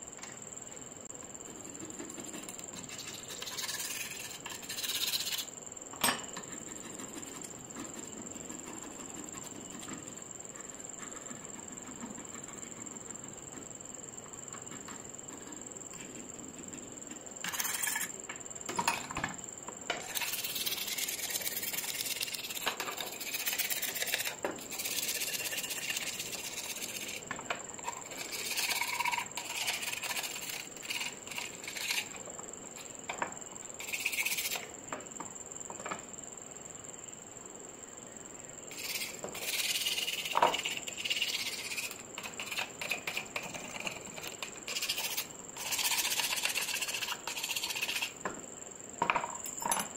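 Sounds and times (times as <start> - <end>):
scraping and rubbing on metal: 1.5 - 5.5, 14.6 - 18.2, 20.0 - 33.0, 33.8 - 34.7, 38.7 - 48.2.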